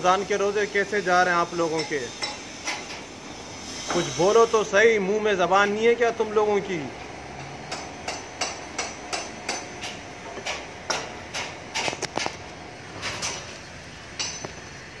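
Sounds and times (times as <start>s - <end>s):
hammer blows ringing: 1.6s - 3.0s.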